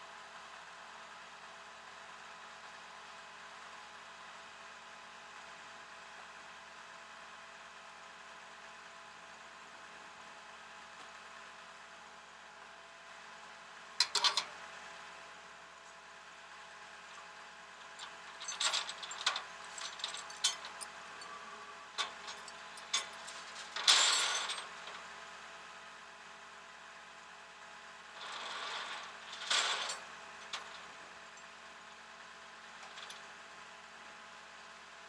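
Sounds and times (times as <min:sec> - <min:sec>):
truck engine idling: 0:16.0 - 0:27.3
chains clinking on steel deck: 0:17.8 - 0:25.0, 0:28.2 - 0:31.4.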